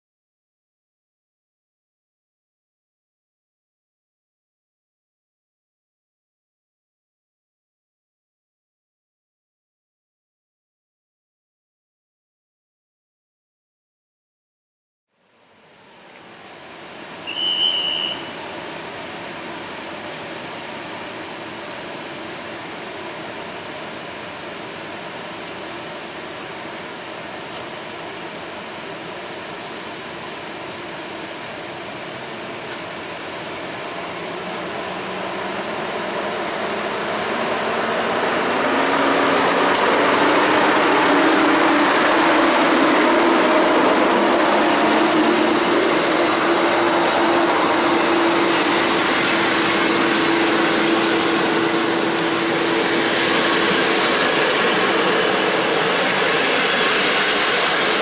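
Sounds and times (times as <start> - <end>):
electric locomotive hum: 15.3 - 58.0
train wheels rolling past: 16.6 - 58.0
short high whistle: 17.2 - 18.6.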